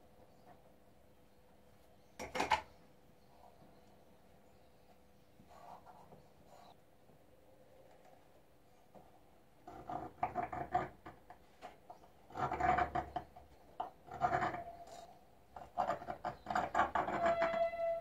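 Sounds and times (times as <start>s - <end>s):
metal scribe scratching plastic: 9.6s - 18.0s
thin squeal of scribe: 17.1s - 18.0s.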